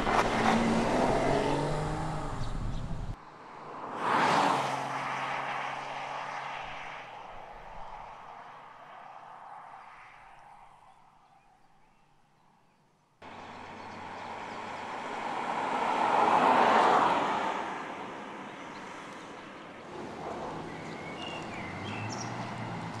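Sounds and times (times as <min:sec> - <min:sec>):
car driving past: 0:00.0 - 0:07.3.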